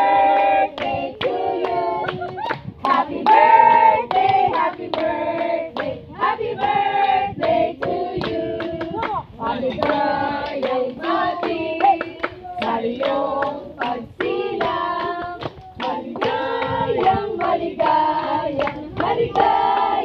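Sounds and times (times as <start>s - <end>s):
group singing birthday song: 0.0s - 20.0s
hands clapping in time: 11.4s - 20.0s.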